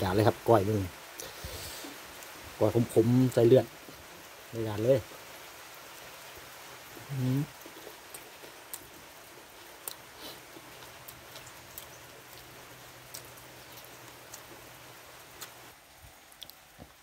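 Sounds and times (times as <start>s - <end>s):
light rain hiss: 0.0s - 17.0s.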